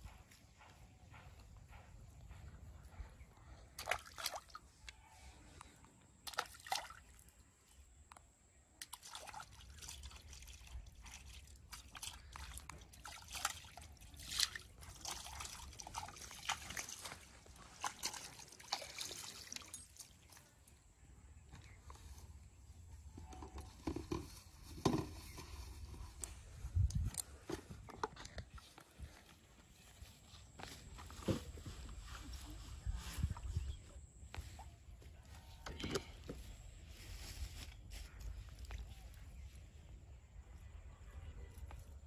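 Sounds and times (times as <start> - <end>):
water splashing and dripping: 3.8 - 4.7, 6.2 - 7.4, 8.8 - 20.5.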